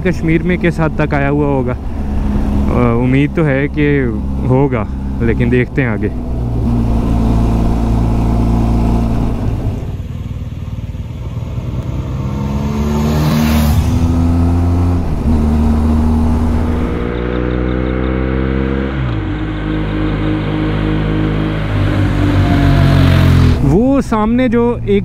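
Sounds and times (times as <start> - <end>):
motorcycle engine running: 0.0 - 11.9, 13.7 - 24.6
wind rush: 0.8 - 8.2.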